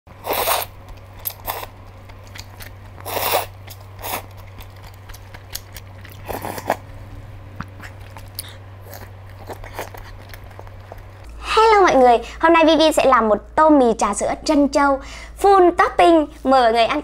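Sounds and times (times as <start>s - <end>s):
noodles slurped: 0.1s - 11.3s
mouth clicks: 0.5s - 6.8s, 7.6s - 11.2s
soft chewing: 0.5s - 11.4s.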